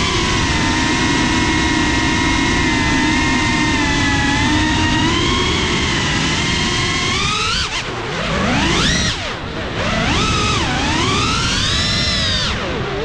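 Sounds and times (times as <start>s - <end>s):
drone motors whining: 0.0s - 13.0s
wind noise: 0.0s - 13.0s.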